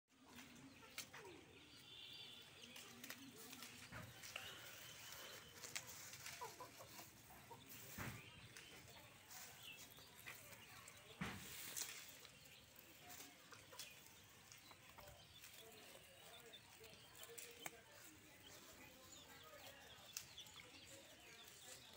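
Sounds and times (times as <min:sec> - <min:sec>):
goats tearing and chewing grass: 0:00.1 - 0:21.9
hen clucking softly: 0:06.0 - 0:08.2.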